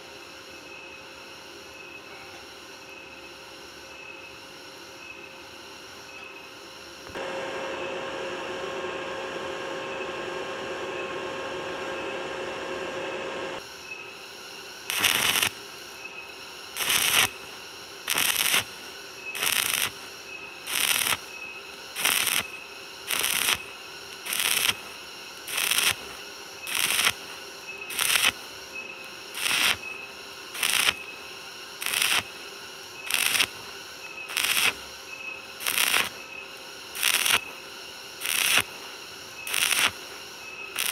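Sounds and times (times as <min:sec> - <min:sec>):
steady hum with held tones: 0:00.0 - 0:40.9
welding arc crackling: 0:14.9 - 0:15.6, 0:16.7 - 0:37.6, 0:38.2 - 0:40.9.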